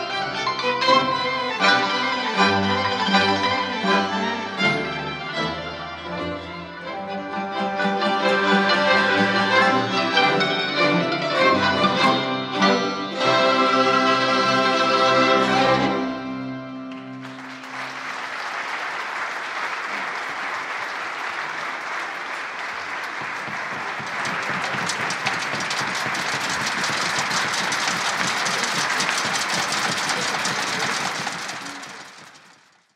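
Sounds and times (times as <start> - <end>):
audience applauding: 16.9 - 32.9.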